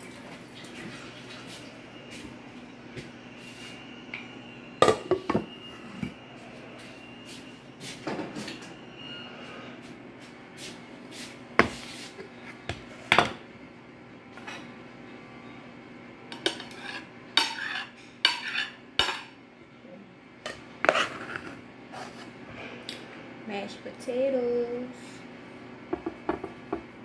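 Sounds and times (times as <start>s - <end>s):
pots and lids clanking: 4.8s - 6.2s, 16.3s - 19.3s
metal spoon scraping a pot: 16.4s - 19.2s, 20.8s - 22.2s.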